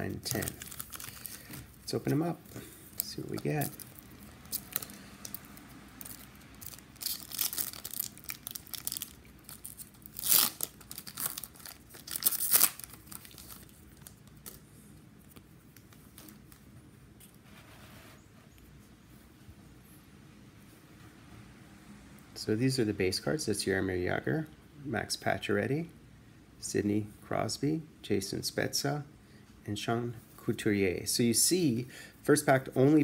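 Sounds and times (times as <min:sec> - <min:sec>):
wrapper tearing and crinkling: 0:00.1 - 0:02.2, 0:03.0 - 0:14.6
faint rustling: 0:13.2 - 0:21.4.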